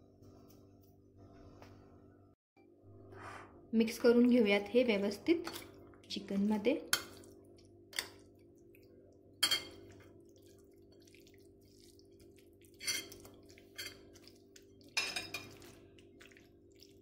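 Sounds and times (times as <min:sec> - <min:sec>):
hand mixing wet food: 0:04.8 - 0:17.0
metal spoon clinking bowl: 0:09.4 - 0:10.0, 0:12.8 - 0:14.1, 0:15.0 - 0:15.7.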